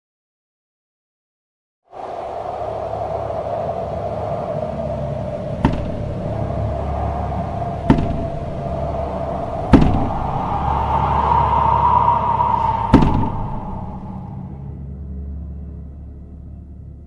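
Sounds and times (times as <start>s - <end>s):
droning music tone: 2.1s - 17.0s.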